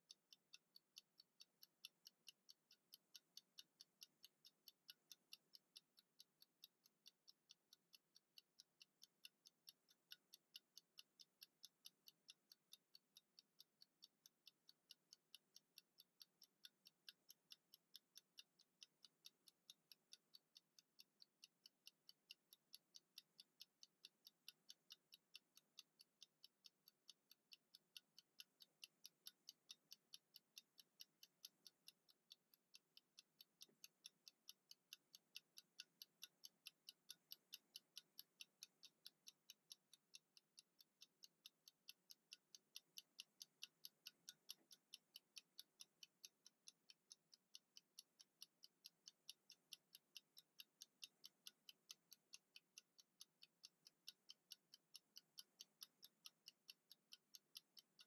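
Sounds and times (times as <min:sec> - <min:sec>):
kitchen timer ticking: 0:00.0 - 0:58.0.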